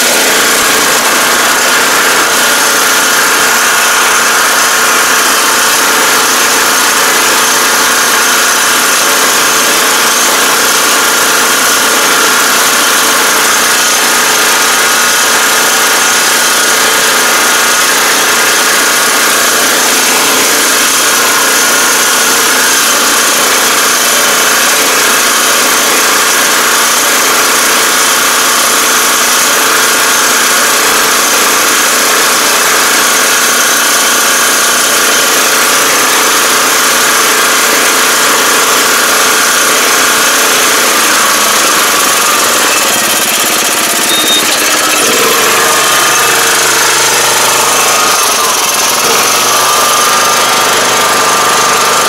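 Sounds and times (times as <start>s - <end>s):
rice transplanter engine running: 0.0s - 52.0s.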